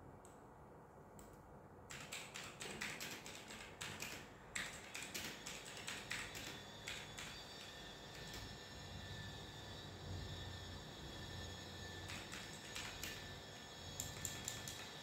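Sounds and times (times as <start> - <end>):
laptop keyboard typing: 1.9 - 8.5, 12.0 - 15.0.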